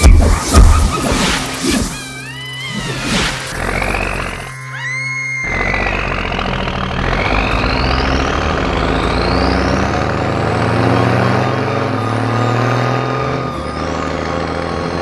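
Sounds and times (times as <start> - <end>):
cartoon truck engine whining: 0.0 - 15.0.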